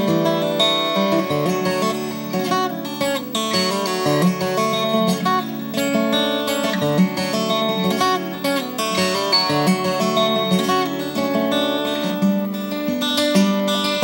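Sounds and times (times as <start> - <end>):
fingerstyle acoustic guitar: 0.0 - 14.0.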